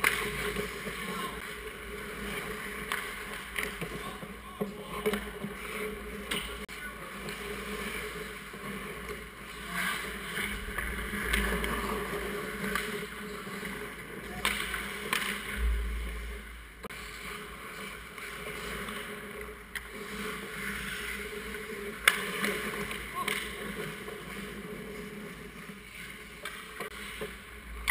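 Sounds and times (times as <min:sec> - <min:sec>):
sticks and puck knocking: 0:00.0 - 0:01.1, 0:01.9 - 0:06.6, 0:10.4 - 0:13.8, 0:14.4 - 0:15.6
skates scraping ice: 0:00.0 - 0:27.9
dull low thump: 0:15.6 - 0:16.8.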